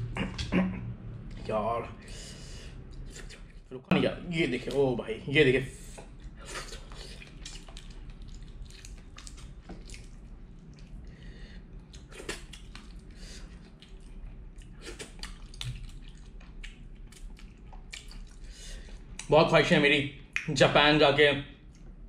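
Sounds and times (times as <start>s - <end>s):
man eating wet smacks: 5.9s - 11.2s, 11.8s - 19.3s.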